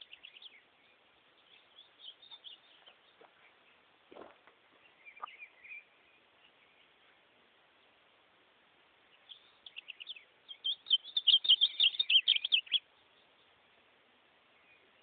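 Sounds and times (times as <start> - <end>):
bird singing warbled phrase: 9.2 - 13.1.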